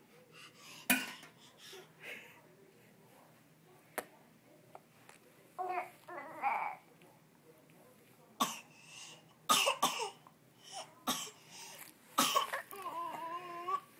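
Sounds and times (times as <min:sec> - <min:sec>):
toddler babbling: 0:05.6 - 0:06.8
toddler coughing: 0:09.5 - 0:10.2, 0:12.2 - 0:12.7.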